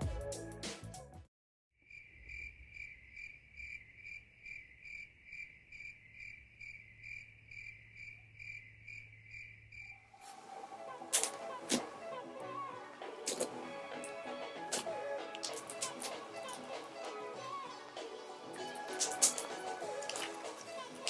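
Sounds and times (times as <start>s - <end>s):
cricket chirping: 1.8s - 10.2s.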